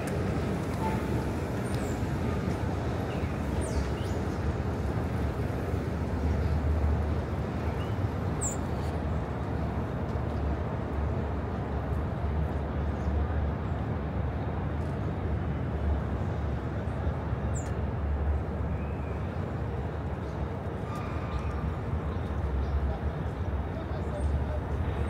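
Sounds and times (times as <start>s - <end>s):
low rumble of traffic: 0.0s - 25.0s.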